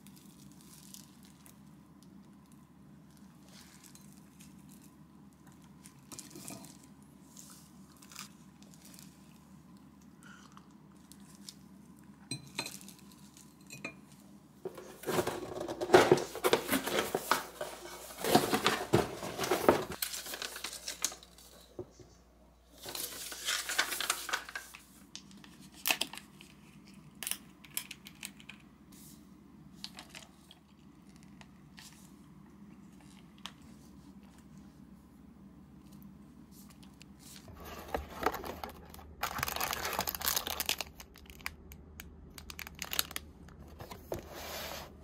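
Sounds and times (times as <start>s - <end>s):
plastic packaging crinkling: 15.0s - 21.6s, 22.8s - 26.8s, 37.5s - 44.1s.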